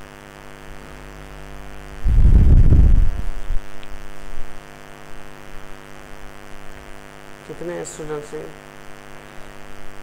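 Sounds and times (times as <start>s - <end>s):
electrical mains hum: 0.0s - 10.0s
microphone rubbing on shirt: 1.9s - 4.6s.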